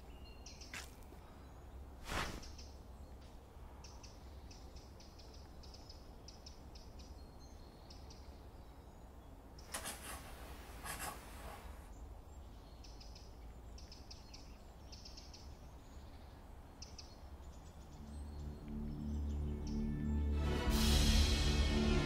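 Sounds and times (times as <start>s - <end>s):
bird chirps: 0.0s - 9.9s, 11.9s - 20.1s
rustling swishes: 2.0s - 2.7s, 9.7s - 11.9s.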